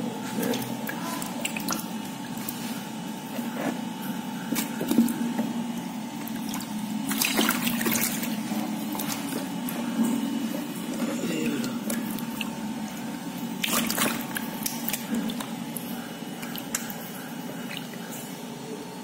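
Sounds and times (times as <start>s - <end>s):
water splashing and sloshing: 0.0s - 19.0s
water dripping: 0.5s - 2.4s, 11.4s - 18.3s.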